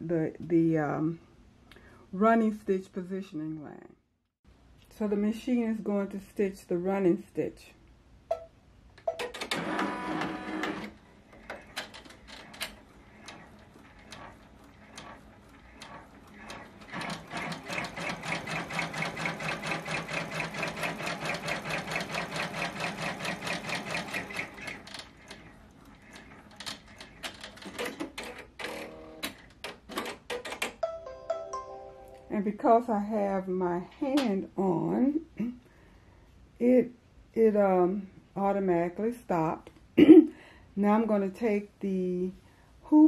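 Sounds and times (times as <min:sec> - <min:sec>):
embroidery machine stitching: 0:09.2 - 0:30.6.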